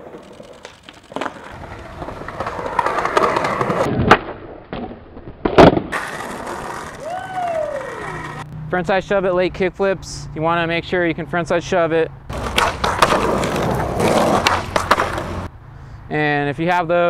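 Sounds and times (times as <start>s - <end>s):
skateboard landing clack: 0.0s - 7.0s, 12.3s - 15.5s
skateboard wheels rolling on concrete: 0.0s - 8.5s, 12.3s - 15.5s
skateboard tail pop: 3.1s - 6.2s.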